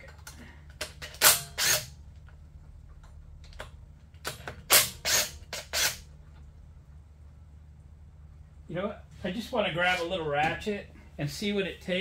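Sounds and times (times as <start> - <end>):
impact wrench bursts: 0.8 - 2.0, 4.3 - 6.1.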